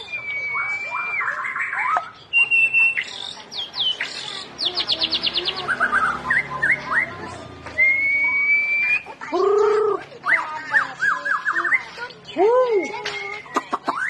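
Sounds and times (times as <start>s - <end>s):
bird singing whistling song: 0.0s - 7.2s, 7.8s - 9.1s, 11.0s - 11.9s.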